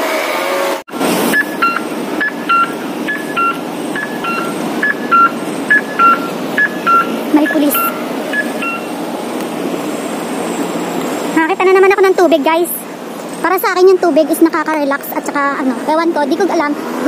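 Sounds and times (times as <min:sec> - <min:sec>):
street noise: 0:00.0 - 0:17.0
wind: 0:00.0 - 0:17.0
crossing signal two-pitch beeps: 0:01.3 - 0:08.9.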